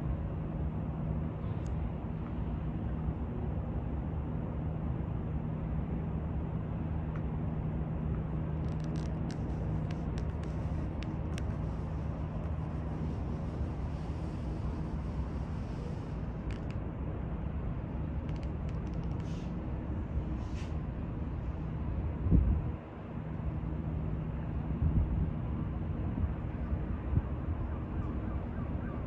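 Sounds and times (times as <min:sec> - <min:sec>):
constant low hum: 0:00.0 - 0:29.0
ship low rumble: 0:00.0 - 0:29.0
faint clicks: 0:08.6 - 0:12.6, 0:16.4 - 0:16.8, 0:18.2 - 0:19.4.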